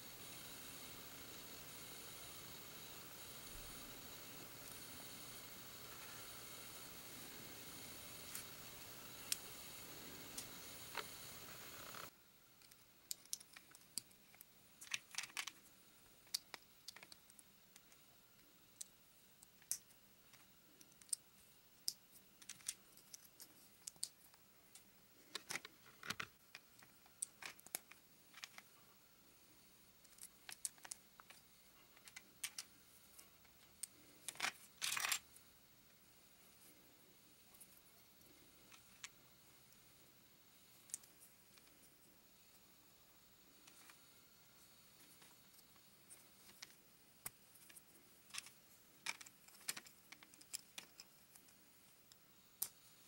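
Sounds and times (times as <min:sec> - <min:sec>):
plastic bricks clicking: 0:12.6 - 0:15.6, 0:16.3 - 0:18.0, 0:21.8 - 0:24.2, 0:46.5 - 0:51.5.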